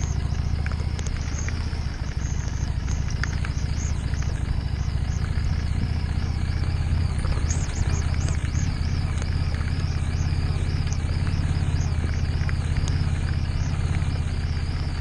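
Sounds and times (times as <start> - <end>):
faint ticks: 0.0 - 15.0
motorcycle engine running: 0.0 - 15.0
tyres on wet gravel: 0.0 - 15.0.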